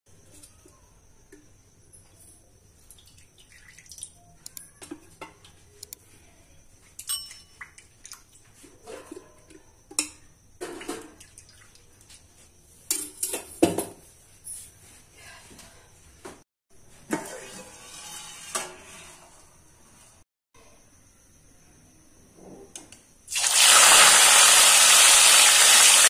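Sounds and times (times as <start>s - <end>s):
utensils clinking on metal pan: 7.0s - 7.6s.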